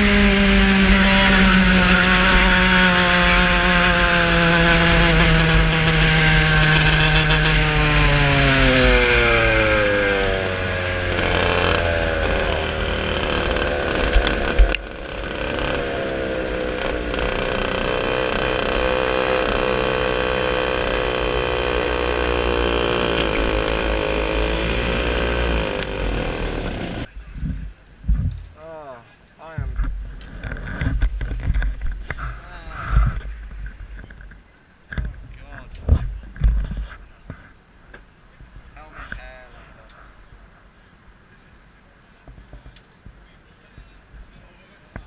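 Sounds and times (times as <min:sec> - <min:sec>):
kart engine running: 0:00.0 - 0:27.1.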